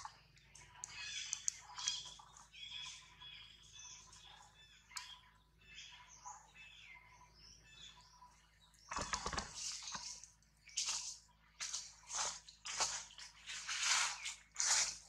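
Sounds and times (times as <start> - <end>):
sharp clicks: 0.0 - 2.5
small birds chirping: 0.0 - 15.0.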